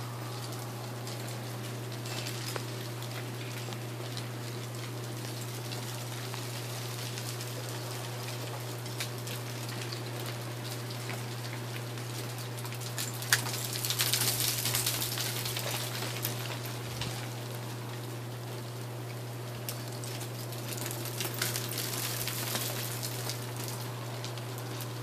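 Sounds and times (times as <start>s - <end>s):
melting ice dripping from trees: 0.0s - 25.0s.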